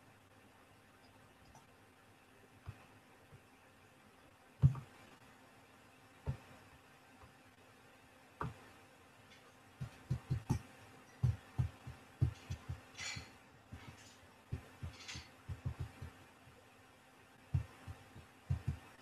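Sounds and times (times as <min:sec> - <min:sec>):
soft low thumps on microphone: 0:17.5 - 0:19.0.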